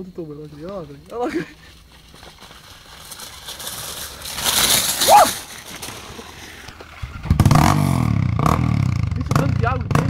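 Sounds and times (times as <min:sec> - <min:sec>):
dirt bike engine running: 0:02.1 - 0:10.0.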